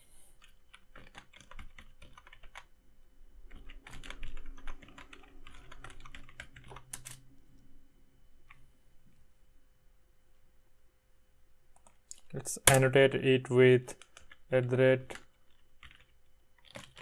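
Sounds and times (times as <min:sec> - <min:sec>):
computer keyboard typing: 0:00.4 - 0:02.7, 0:03.4 - 0:07.2, 0:13.9 - 0:14.5, 0:15.1 - 0:17.0.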